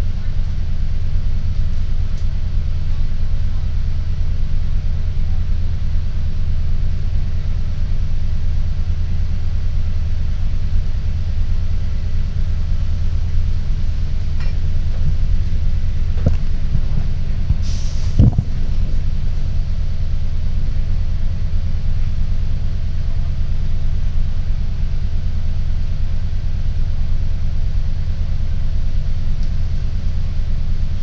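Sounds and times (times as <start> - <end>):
bus engine idling: 0.0 - 31.0
short hiss: 17.6 - 18.4.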